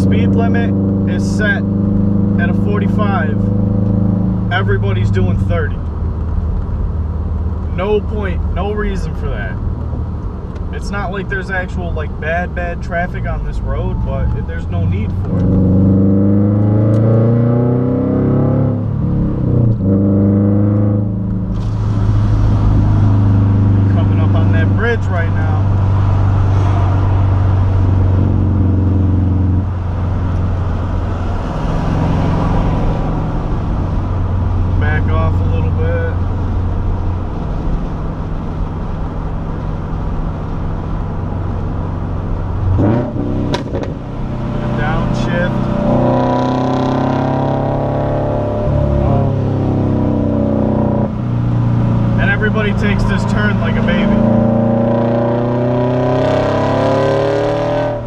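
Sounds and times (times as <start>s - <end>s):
car engine accelerating: 0.0s - 58.0s
road noise hiss: 21.3s - 28.5s.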